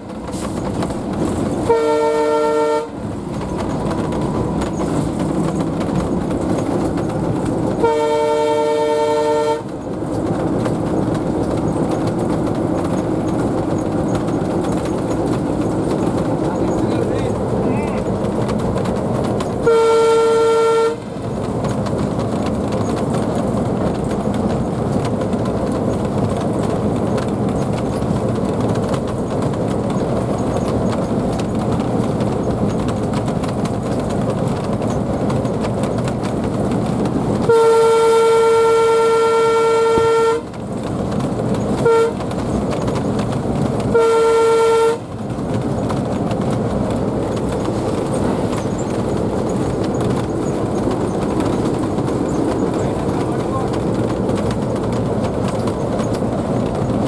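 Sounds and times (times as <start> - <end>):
diesel locomotive running: 0.0 - 57.0
locomotive horn blasts: 1.6 - 3.0, 7.7 - 9.7, 19.6 - 21.2, 37.4 - 40.6, 41.8 - 42.4, 43.8 - 45.1.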